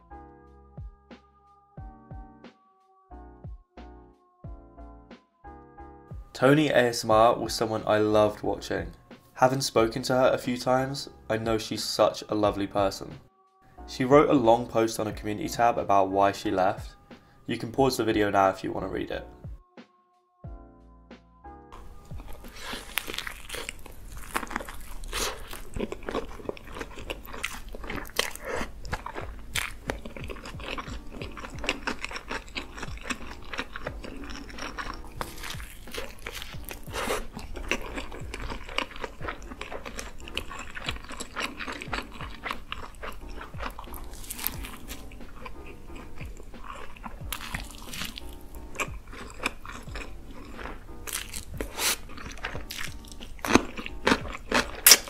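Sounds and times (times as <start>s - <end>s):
background music: 0.0s - 55.0s
crunchy bites and chewing: 21.8s - 55.0s.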